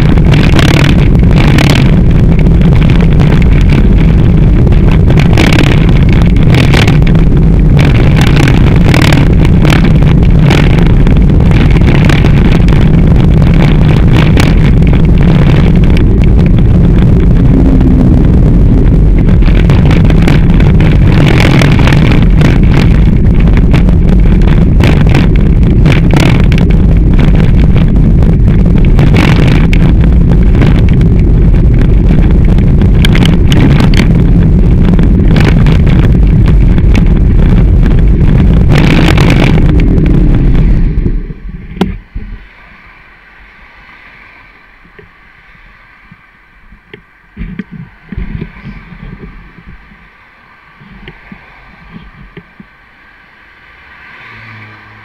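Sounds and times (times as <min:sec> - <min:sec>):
wind and road rumble: 0:00.0 - 0:55.0.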